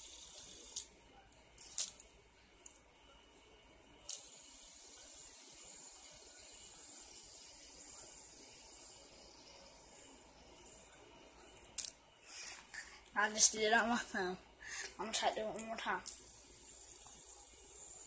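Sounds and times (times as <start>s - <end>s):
fidget spinner bearing whirring: 0.0s - 18.0s.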